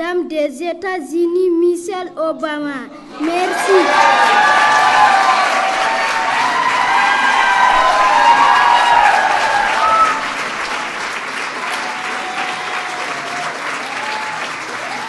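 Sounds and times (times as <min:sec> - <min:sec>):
voices calling out: 0:03.2 - 0:10.3
large audience applauding: 0:03.2 - 0:15.0.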